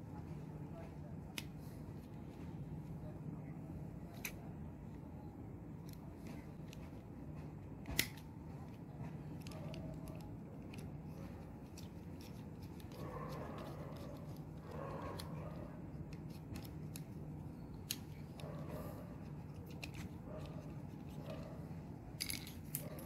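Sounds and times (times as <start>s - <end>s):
steady low hum: 0.0s - 23.0s
screwdriver clicks and scrapes: 19.3s - 21.4s.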